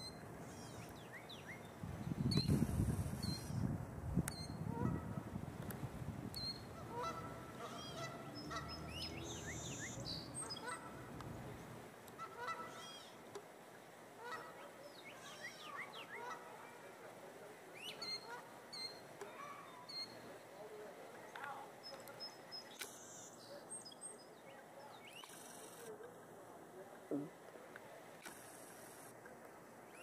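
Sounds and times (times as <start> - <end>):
honk-like bird calls: 6.8 - 9.1, 12.2 - 13.1
birds chirping and whistling: 7.8 - 10.6.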